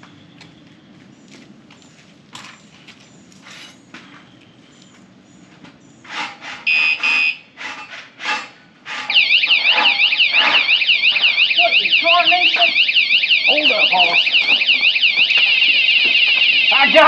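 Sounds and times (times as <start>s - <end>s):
warbling alarm siren: 6.7s - 7.4s, 9.1s - 17.0s
short high alarm beeps: 6.7s - 7.5s, 9.1s - 17.0s.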